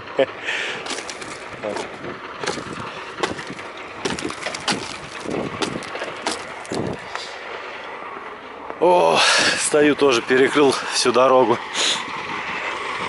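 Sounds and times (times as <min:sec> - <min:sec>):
ice cracking and snapping off: 0:00.8 - 0:06.9.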